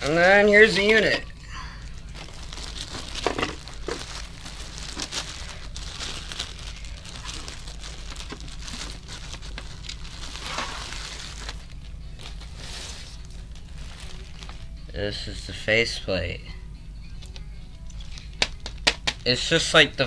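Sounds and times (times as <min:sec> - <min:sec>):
plastic wrapping crinkling: 0:01.8 - 0:15.1, 0:17.2 - 0:20.0.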